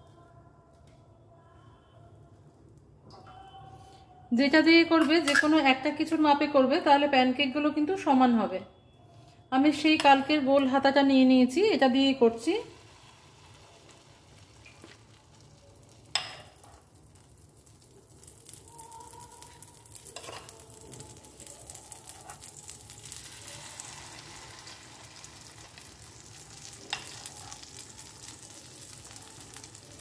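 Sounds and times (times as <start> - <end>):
batter sizzling in pan: 12.3 - 30.0
steel ladle tapping pan: 16.1 - 16.7.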